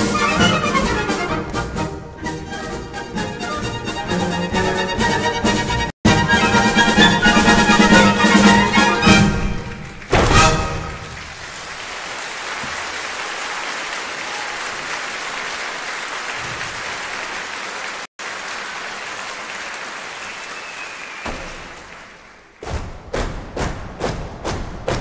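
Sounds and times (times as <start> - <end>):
audience applauding: 7.0 - 22.7.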